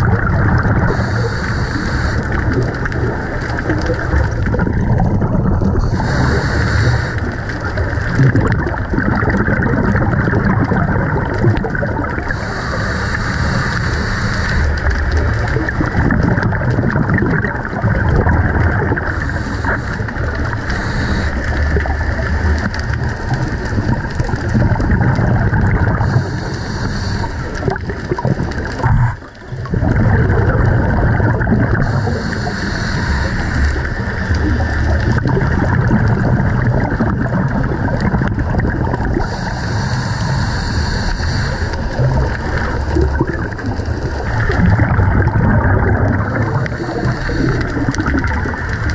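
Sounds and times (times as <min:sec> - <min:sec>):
muffled rumble of moving water: 0:00.0 - 0:48.9
regulator exhaust bubbles hissing: 0:00.0 - 0:48.9.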